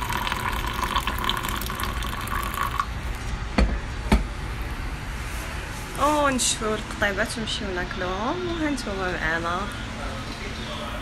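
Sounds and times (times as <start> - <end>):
tea pouring into a glass: 0.0 - 2.9.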